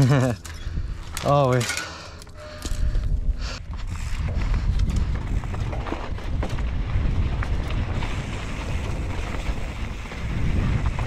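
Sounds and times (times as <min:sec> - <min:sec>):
wind rumbling on microphone: 0:00.5 - 0:01.2, 0:02.7 - 0:11.0
bike clicks and knocks: 0:03.8 - 0:11.0.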